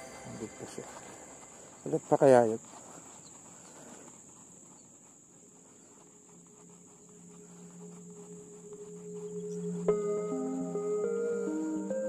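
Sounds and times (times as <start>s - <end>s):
low droning background music: 0.0s - 1.9s, 6.3s - 12.0s
insects buzzing: 0.0s - 12.0s.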